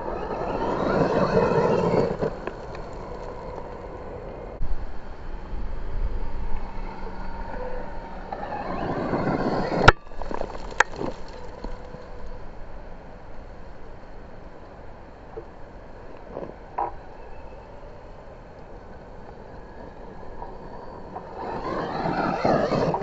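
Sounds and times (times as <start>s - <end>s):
electric motor whining: 0.0s - 3.9s, 6.6s - 12.1s, 21.0s - 23.0s
tyre spinning in gravel: 0.1s - 3.9s, 8.4s - 12.4s, 21.4s - 23.0s.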